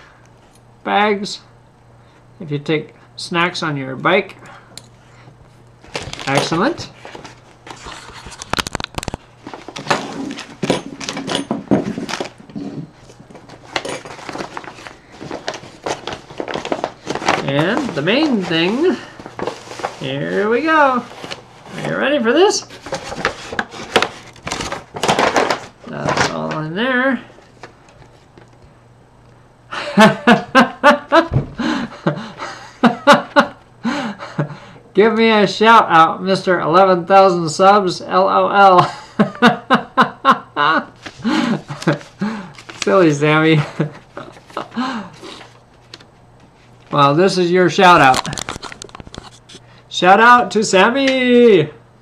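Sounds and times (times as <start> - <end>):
plastic bag rustling: 5.8 - 26.4
man laughing: 29.7 - 34.8, 38.8 - 42.5, 43.5 - 45.2.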